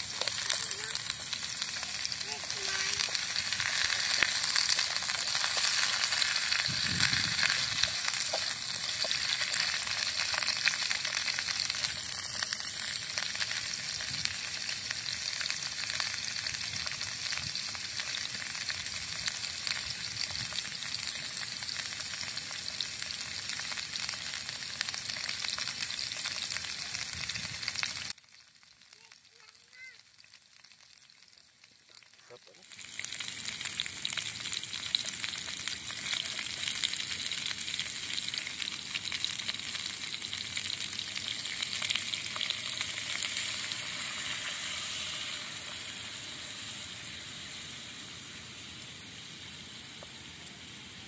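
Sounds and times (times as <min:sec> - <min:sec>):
chicken feet sizzling in oil: 0:00.0 - 0:51.0.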